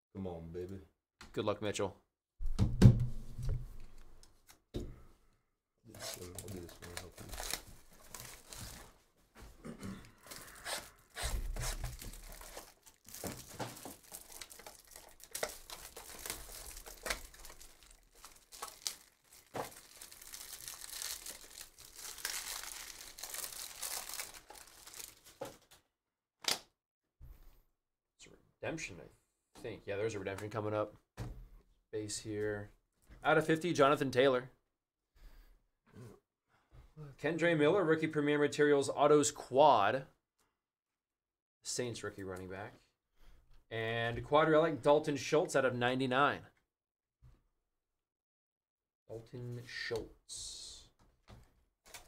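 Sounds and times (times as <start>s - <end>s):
plastic wrappers tearing and crinkling: 6.0s - 8.9s, 10.2s - 25.7s.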